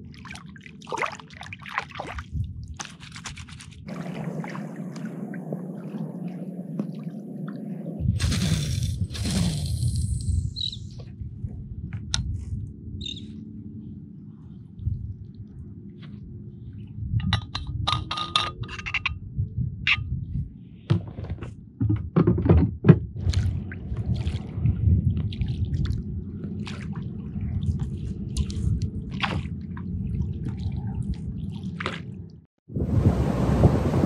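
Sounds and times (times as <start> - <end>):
water lapping against kayak hull: 0.0 - 8.4, 23.1 - 32.3
paddle strokes splashing: 0.2 - 7.8.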